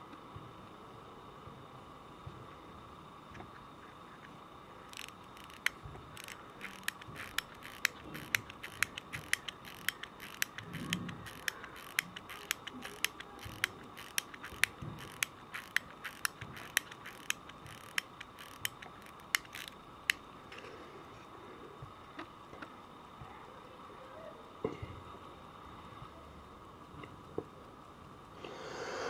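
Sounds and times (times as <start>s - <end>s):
watch winding ratchet clicks: 4.9s - 20.2s.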